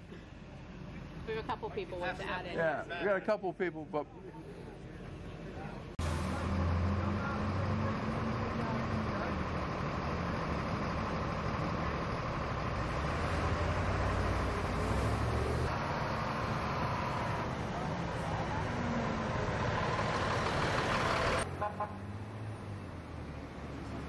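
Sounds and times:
vehicles driving past: 0.0s - 24.0s
fire truck engine passing: 6.0s - 24.0s.

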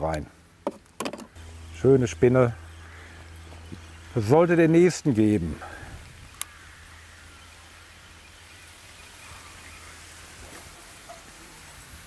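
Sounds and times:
low hum: 1.3s - 10.8s
faint steady hiss: 1.4s - 12.0s.

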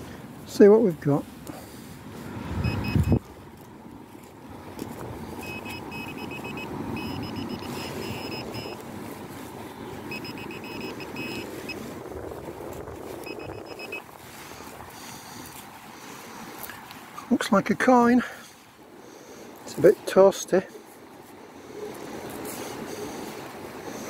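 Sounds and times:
short high beeps: 2.6s - 3.2s, 5.4s - 8.8s, 10.1s - 11.8s, 13.2s - 14.0s
steady rushing noise: 4.4s - 24.0s.

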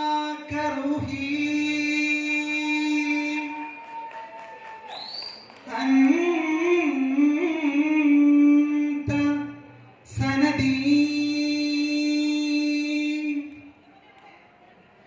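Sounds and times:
man singing into a microphone: 0.0s - 3.8s, 5.7s - 13.5s.

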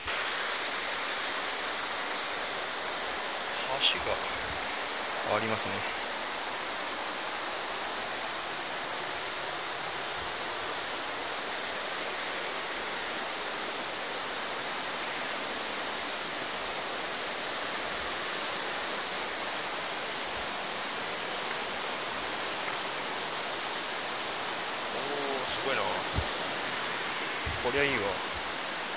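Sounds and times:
rushing river water: 0.0s - 28.9s.

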